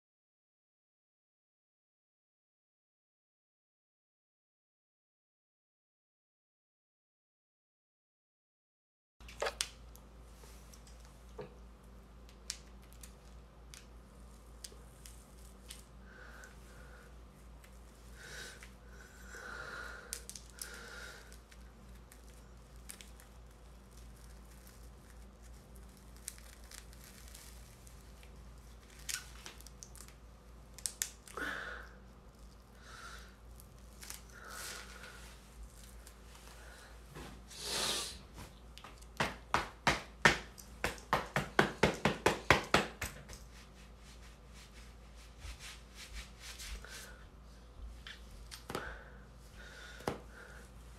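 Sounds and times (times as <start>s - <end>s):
wig rustling and scraping: 33.6s - 41.2s, 42.0s - 47.2s.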